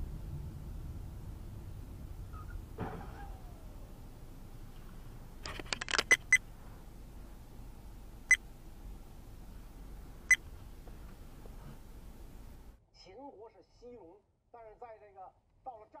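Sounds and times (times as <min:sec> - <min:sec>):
car interior hum: 0:00.0 - 0:12.8
rattle of clicks: 0:04.8 - 0:06.4.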